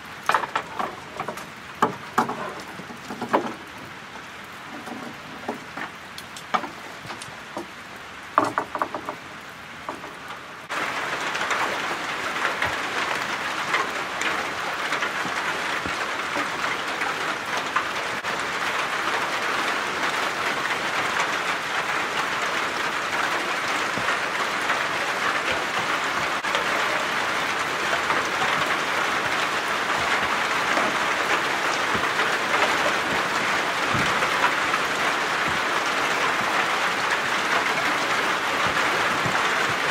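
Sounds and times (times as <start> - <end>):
steady dense rain: 0.0 - 39.9
plastic tarp rustling and clicking: 22.2 - 39.9.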